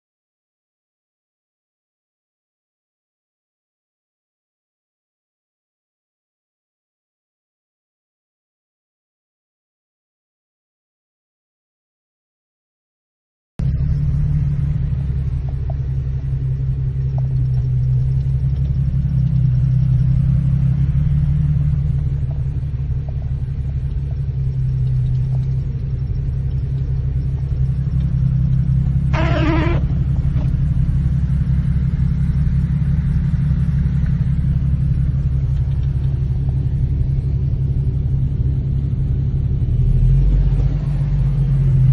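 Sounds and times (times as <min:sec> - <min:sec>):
car engine rumble: 0:13.6 - 0:41.9
road noise: 0:13.6 - 0:41.9
short single tone: 0:29.1 - 0:30.0.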